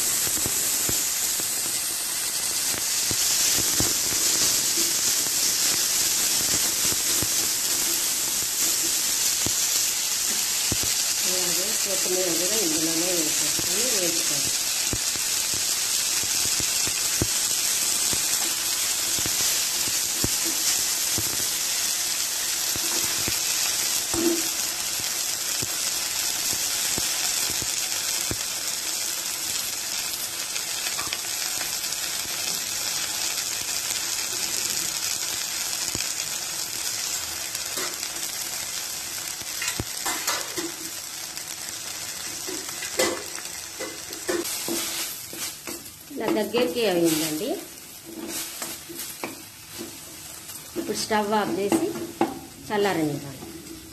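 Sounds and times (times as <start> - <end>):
leaves sizzling in a pan: 0.0 - 53.9
wooden spatula scraping a pan: 48.1 - 50.1.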